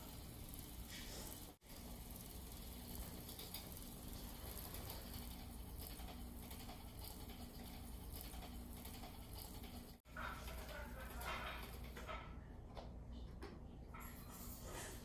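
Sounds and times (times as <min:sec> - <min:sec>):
small toy motor whirring: 0:00.0 - 0:12.0.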